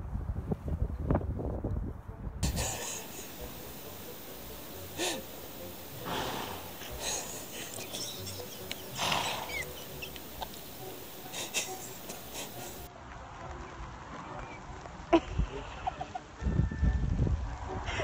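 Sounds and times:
horses snorting: 2.4s - 12.9s.

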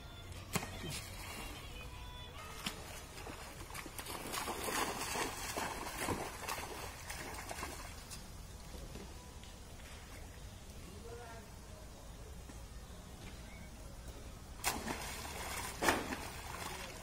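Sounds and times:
monkeys splashing in water: 3.2s - 8.0s, 14.6s - 17.0s.

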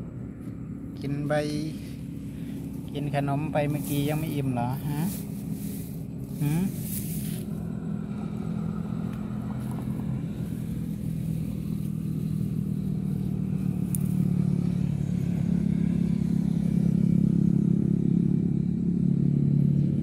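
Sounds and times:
engine humming: 0.0s - 20.0s.

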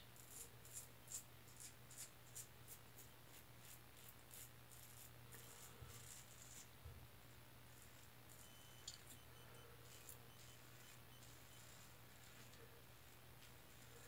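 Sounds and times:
faint steady hum: 0.0s - 14.0s
razor scratching through stubble: 0.2s - 14.0s.

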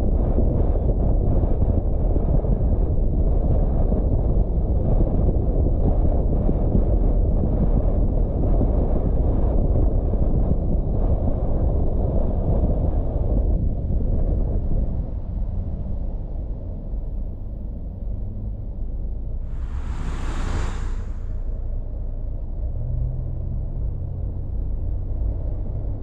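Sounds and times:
car driving on road rumble: 16.3s - 26.0s.

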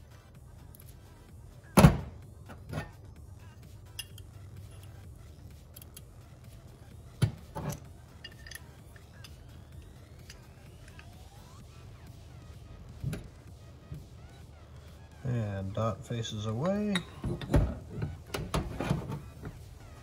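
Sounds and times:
small metal clinks: 3.9s - 5.0s, 7.7s - 11.1s.

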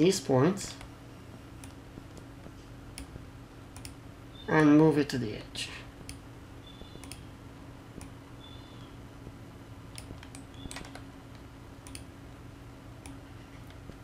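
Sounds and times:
steady low hum: 0.0s - 14.0s
mouse and keyboard clicks: 6.7s - 7.2s.

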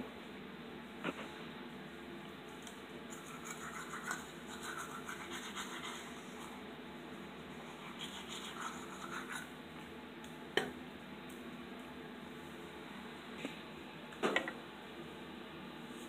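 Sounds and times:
toothbrush scrubbing teeth: 3.1s - 6.6s, 7.4s - 9.5s.

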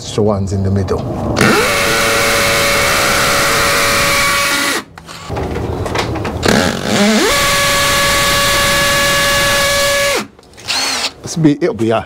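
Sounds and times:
hammer drill boring into masonry: 1.4s - 4.9s, 6.5s - 11.2s.

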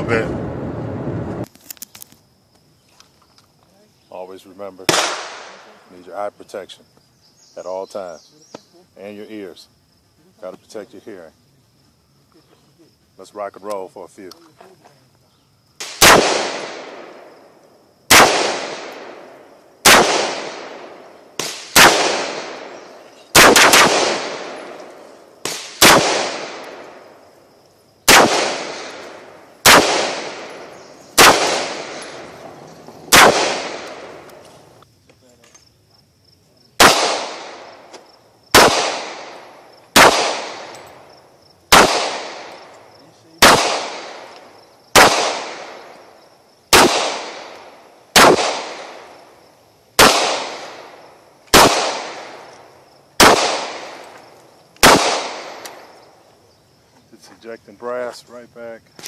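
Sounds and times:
pistol shots: 4.8s - 5.8s, 15.8s - 17.4s, 18.1s - 27.2s, 28.0s - 34.4s, 36.8s - 41.0s, 41.7s - 42.7s, 43.4s - 46.0s, 46.7s - 49.2s, 50.0s - 52.6s, 53.2s - 54.2s, 54.8s - 56.0s
rifle shots echoing: 4.8s - 5.8s, 15.8s - 17.4s, 18.1s - 27.3s, 28.0s - 34.4s, 36.8s - 41.1s, 41.7s - 46.1s, 46.7s - 49.4s, 50.0s - 56.0s.

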